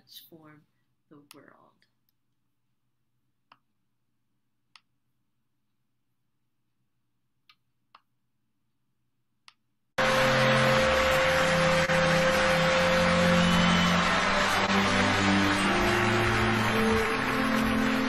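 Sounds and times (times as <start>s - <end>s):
audience applauding: 10.0s - 18.0s
music: 10.0s - 18.0s.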